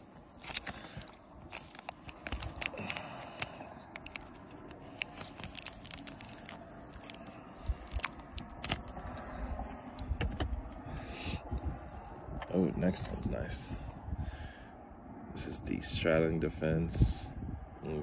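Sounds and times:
plastic bag crinkling: 0:00.3 - 0:09.1.

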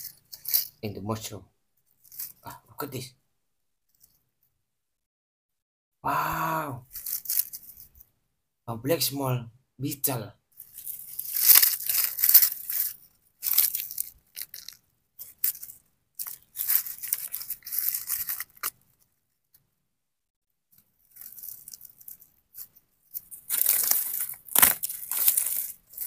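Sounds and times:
rotten wood crackling and scraping: 0:10.8 - 0:18.8, 0:21.1 - 0:26.0.

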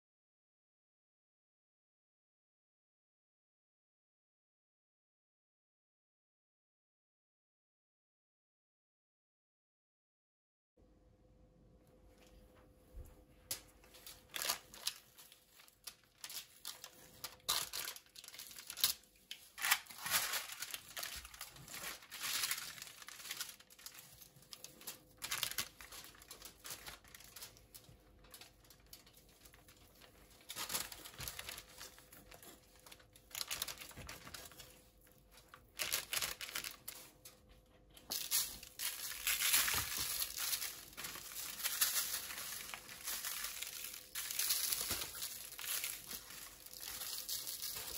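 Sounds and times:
baking paper crinkling and rustling: 0:12.2 - 0:47.9.

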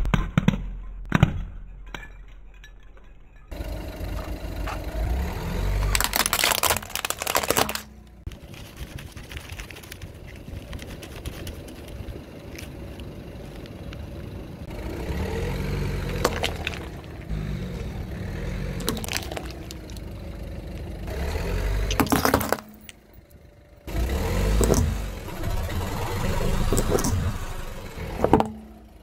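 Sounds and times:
car engine running low: 0:02.6 - 0:29.0
plastic flowers cracking under tyre: 0:05.6 - 0:13.8, 0:16.0 - 0:17.3, 0:18.8 - 0:20.9, 0:21.8 - 0:23.1, 0:24.5 - 0:25.8.

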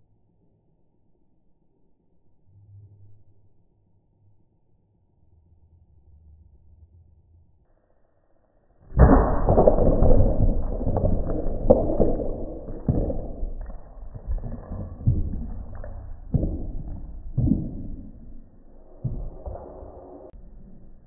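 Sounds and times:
thumps: 0:08.9 - 0:20.4.

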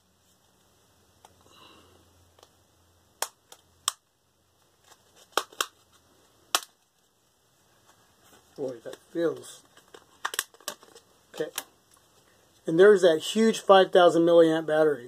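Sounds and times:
plastic clips snapping loose: 0:05.3 - 0:05.8, 0:09.9 - 0:11.7.

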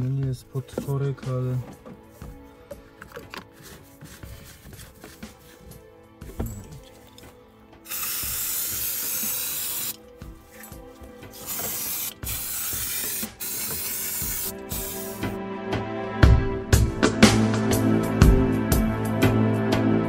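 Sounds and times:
aerosol spray can hissing: 0:07.9 - 0:10.0, 0:11.3 - 0:15.4.

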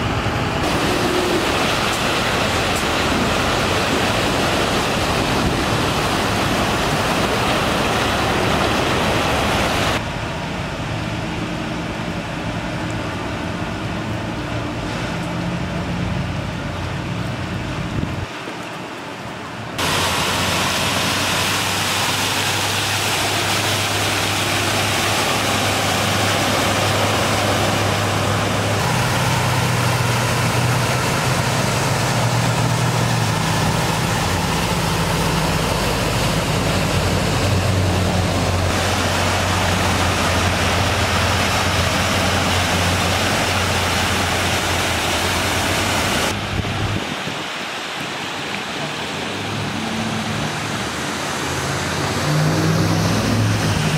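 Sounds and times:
water rushing: 0:00.0 - 0:53.9.

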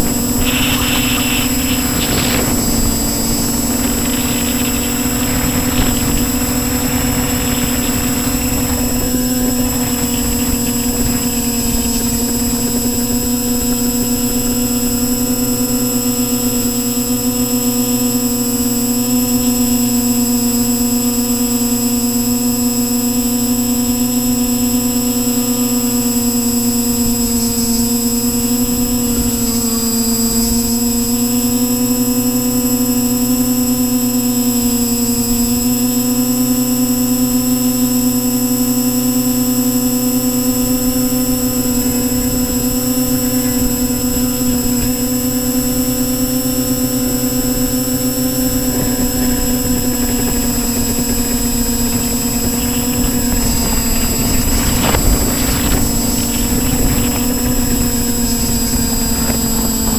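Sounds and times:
rough rushing noise: 0:00.0 - 0:15.0, 0:40.4 - 0:59.9
drone motors whining: 0:00.0 - 0:59.9.

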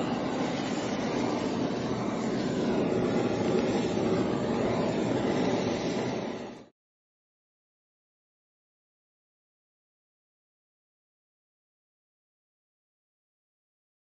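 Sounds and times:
blowtorch hissing: 0:00.0 - 0:06.7.

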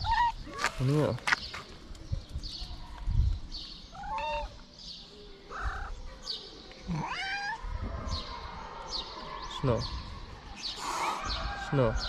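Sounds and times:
cat meowing: 0:06.9 - 0:07.7.

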